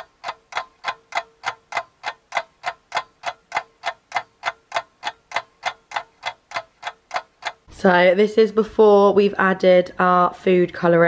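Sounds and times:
sharp ticking: 0.0 - 7.7.

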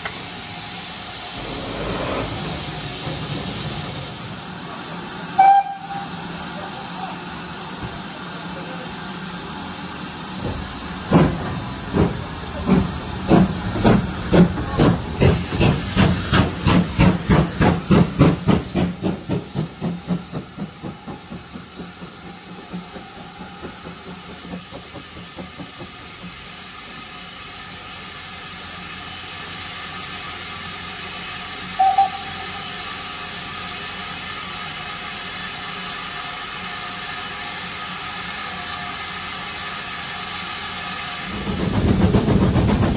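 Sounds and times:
steam hissing: 0.0 - 42.9
steam locomotive exhaust beats: 0.0 - 42.9
short whistle toot: 5.4 - 6.1, 31.8 - 32.6.

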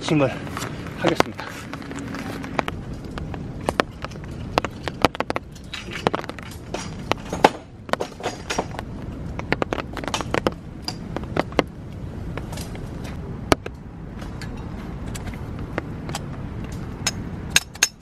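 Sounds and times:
steady outdoor hiss: 0.0 - 18.0
poles clacking on wooden deck: 2.5 - 12.8.

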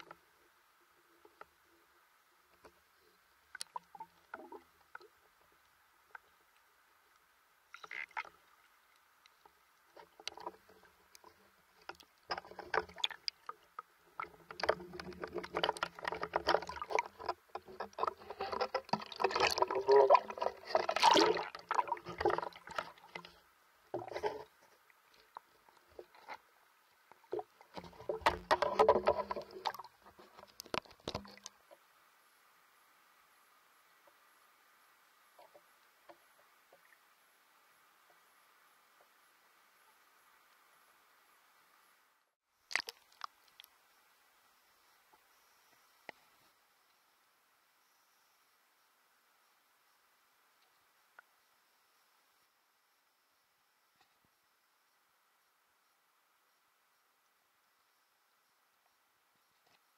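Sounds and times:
water splashing and sloshing: 0.0 - 42.0, 42.6 - 43.8.

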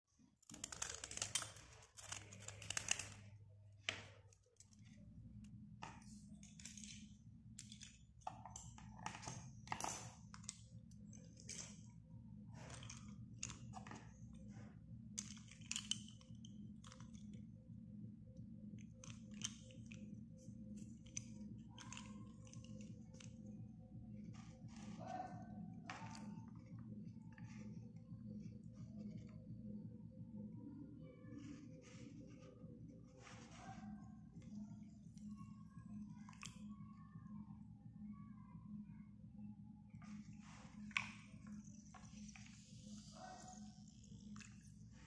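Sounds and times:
knife blade scraping pencils: 0.4 - 3.4
small clicks of pencils: 0.4 - 17.5, 18.6 - 23.6, 36.1 - 36.7, 40.0 - 43.0
steady low hum: 1.8 - 45.0.

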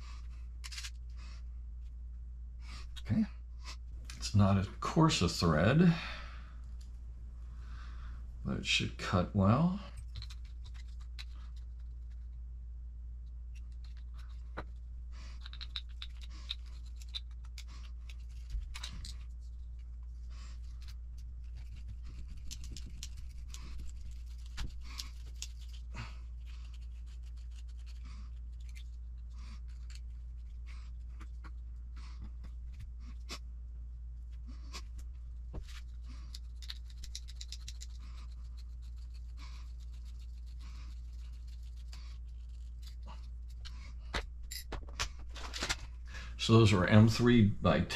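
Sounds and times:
steady low hum: 0.0 - 47.9
metal screws and tools clicking: 15.4 - 19.2, 44.5 - 44.8.

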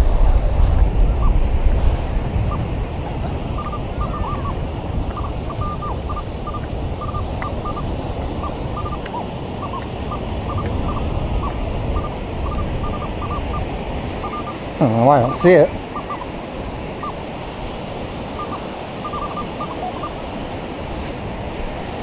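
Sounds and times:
surf: 0.0 - 22.0
wind on microphone: 0.0 - 22.0
metal detector beeps: 3.6 - 16.4, 17.0 - 17.2, 18.4 - 20.2.

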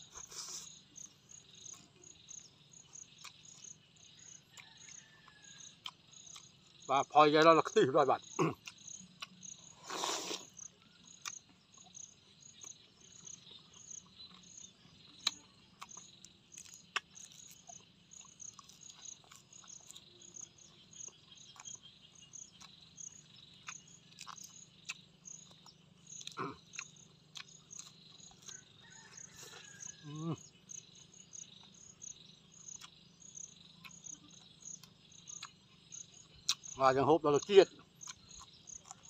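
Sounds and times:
person chewing food: 0.0 - 3.9, 4.5 - 6.8, 8.3 - 30.0, 31.4 - 36.8, 37.4 - 39.0
insects chirping: 0.0 - 39.0
crisp crunch: 15.2 - 20.1.

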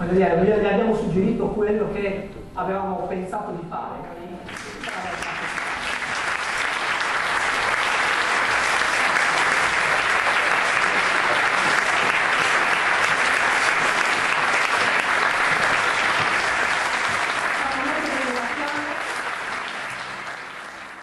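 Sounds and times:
audience applauding: 4.4 - 21.0.

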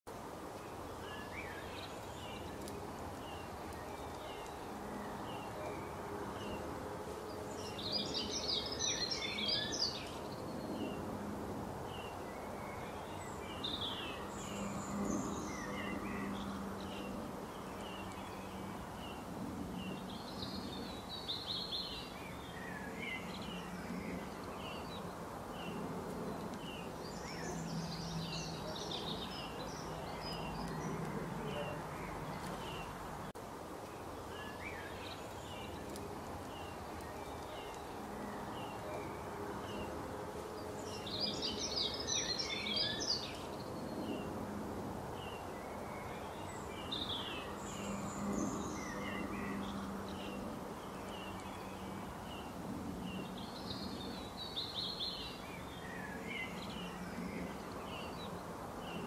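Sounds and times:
birds chirping and singing: 1.0 - 11.0, 40.6 - 44.3.

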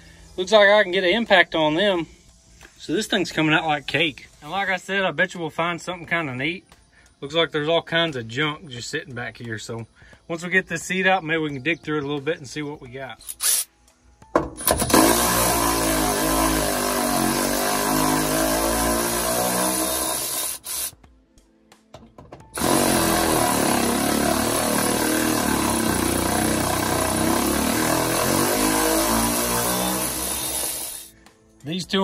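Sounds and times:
impact wrench hammering: 14.4 - 21.0, 21.9 - 31.1.

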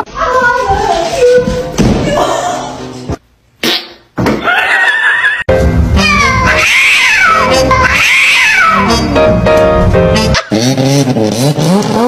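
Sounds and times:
cat meowing: 6.0 - 8.9
cat yowling: 6.0 - 8.9.

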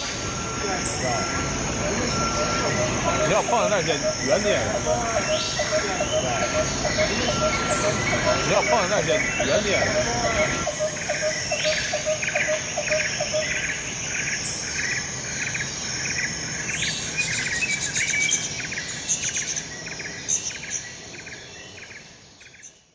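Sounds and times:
steady high hiss: 0.0 - 22.4
insects chirping: 0.0 - 22.9.

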